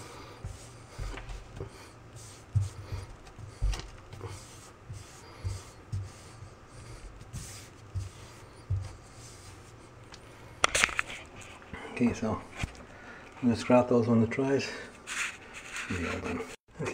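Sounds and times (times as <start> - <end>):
soft dull bumps: 0.0 - 9.7
hand rubbing on tiles: 0.0 - 12.7, 15.0 - 16.6.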